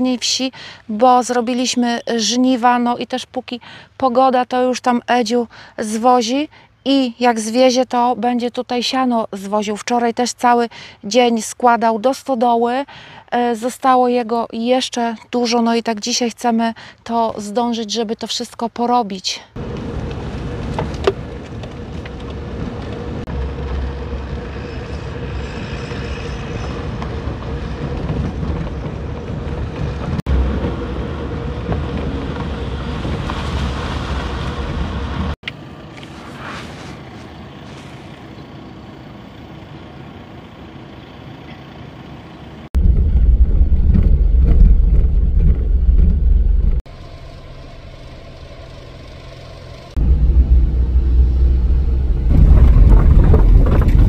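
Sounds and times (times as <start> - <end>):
deep loud engine rumble: 19.6 - 36.2, 37.1 - 54.0
vehicle engine driving: 19.6 - 54.0.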